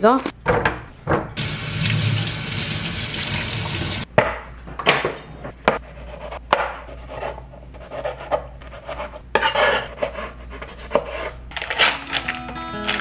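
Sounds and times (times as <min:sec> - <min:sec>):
faucet running water: 0:01.4 - 0:04.1.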